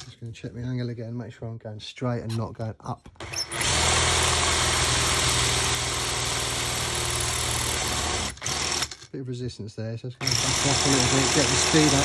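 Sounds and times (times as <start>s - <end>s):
power drill boring into metal: 3.2s - 9.0s, 10.2s - 12.0s.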